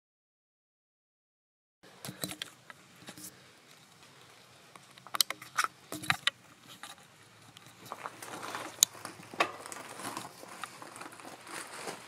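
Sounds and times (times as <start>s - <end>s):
bicycle clicks and knocks: 4.8s - 10.3s
rustle and crunch over leaves: 6.5s - 12.0s.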